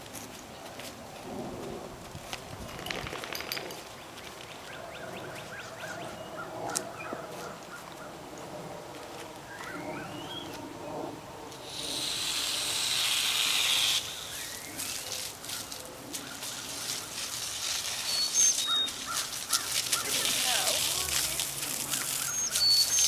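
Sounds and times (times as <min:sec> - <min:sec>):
birds chirping: 0:03.5 - 0:08.2, 0:09.4 - 0:11.0, 0:11.7 - 0:23.0
hose spraying water: 0:11.6 - 0:23.0
water spattering: 0:16.6 - 0:23.0.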